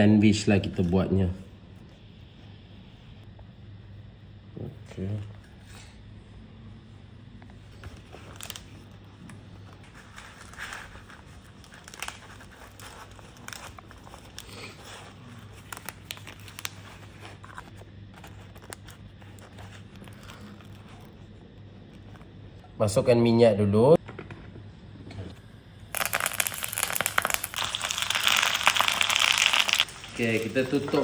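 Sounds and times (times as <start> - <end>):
steady low hum: 0.0 - 31.0
leaf crinkling and rustling: 10.0 - 17.2, 25.9 - 31.0.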